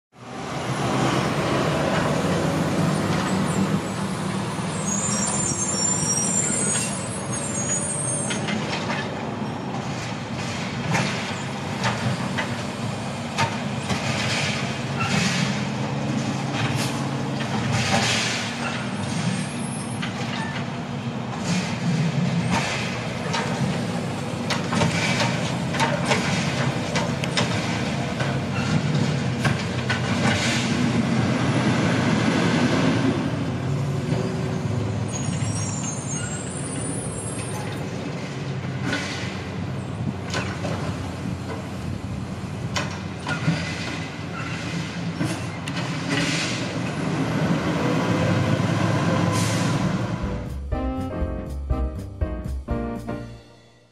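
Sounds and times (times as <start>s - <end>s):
air brakes squealing: 3.0s - 9.6s, 14.4s - 15.7s, 17.7s - 20.7s, 28.5s - 29.0s, 34.6s - 38.0s, 43.3s - 46.8s, 49.2s - 50.0s.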